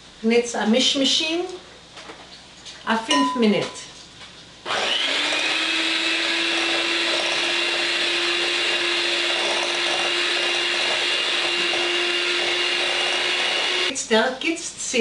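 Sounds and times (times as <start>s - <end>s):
electric mixer whirring: 4.6s - 13.9s.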